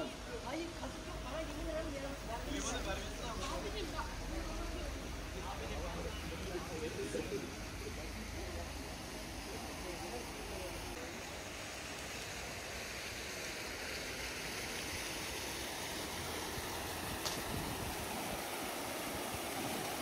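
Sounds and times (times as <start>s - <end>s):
fountain water splashing: 0.0s - 20.0s.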